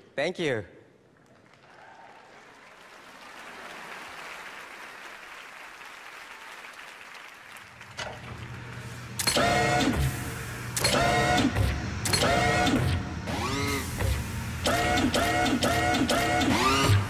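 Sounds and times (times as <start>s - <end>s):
audience applauding: 1.1s - 9.0s.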